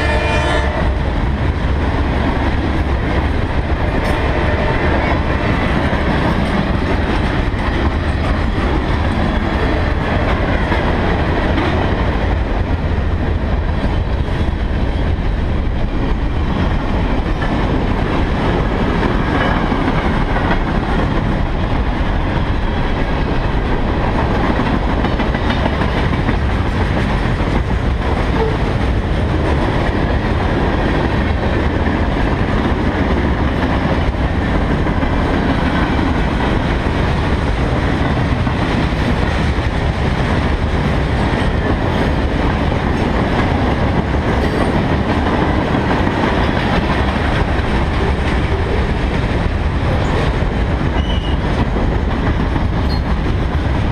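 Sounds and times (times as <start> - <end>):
freight cars rumbling on rails: 0.0 - 53.9.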